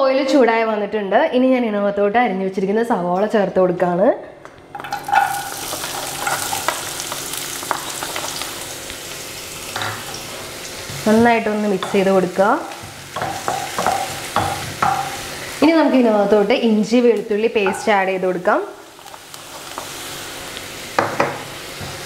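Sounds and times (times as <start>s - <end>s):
onion sizzling in oil: 4.7s - 22.0s.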